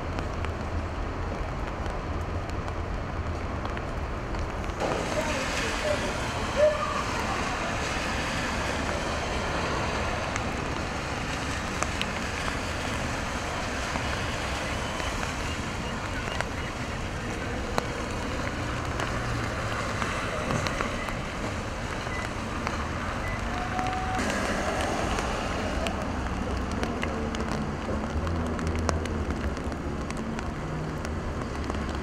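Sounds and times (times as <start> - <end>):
falling rain: 0.0 - 32.0
traffic hiss: 4.8 - 26.7.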